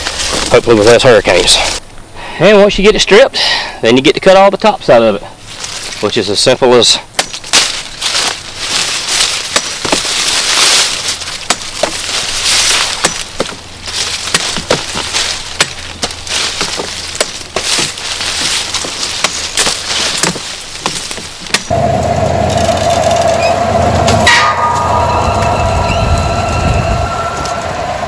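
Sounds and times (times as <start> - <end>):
dry cane leaves rustling: 0.0 - 1.8, 4.2 - 21.8
cane knife chopping stalks: 7.1 - 7.8, 9.2 - 21.7.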